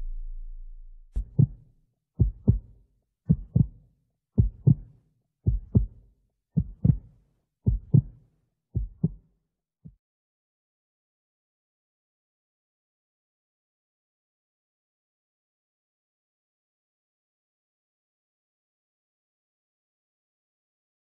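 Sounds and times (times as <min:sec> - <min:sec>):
slow heartbeat: 0:00.0 - 0:02.7, 0:03.3 - 0:03.8, 0:04.4 - 0:04.9, 0:05.5 - 0:06.0, 0:06.6 - 0:07.1, 0:07.7 - 0:08.2, 0:08.8 - 0:09.2.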